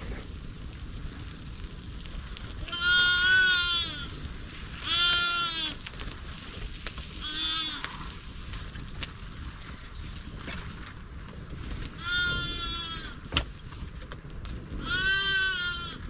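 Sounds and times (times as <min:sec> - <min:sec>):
sheep bleating: 0:02.6 - 0:04.1, 0:04.8 - 0:05.8, 0:07.2 - 0:08.1, 0:12.0 - 0:13.2, 0:14.8 - 0:16.0.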